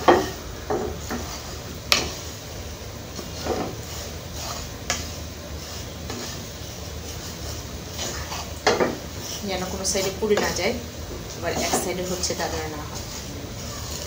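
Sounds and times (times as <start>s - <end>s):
spoon scraping dry vermicelli: 0.9s - 14.0s
spoon knocking against pan: 8.6s - 9.0s.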